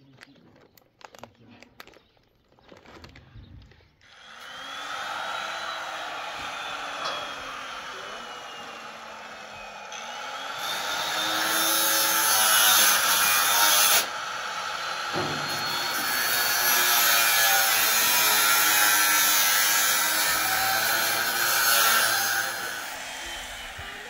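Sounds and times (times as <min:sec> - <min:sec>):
power tool whining: 0:04.0 - 0:24.0.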